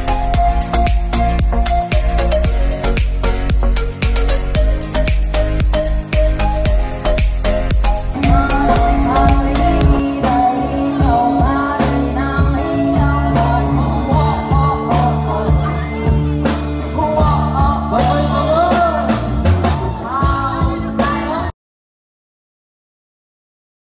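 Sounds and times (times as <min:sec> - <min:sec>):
drum strokes: 0:00.0 - 0:10.0
bass notes: 0:00.0 - 0:21.5
song with singing voice: 0:00.0 - 0:21.5.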